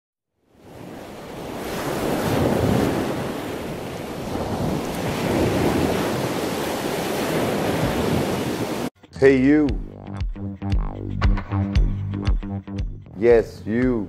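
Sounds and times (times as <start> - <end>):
ocean waves washing in: 0.4 - 8.9.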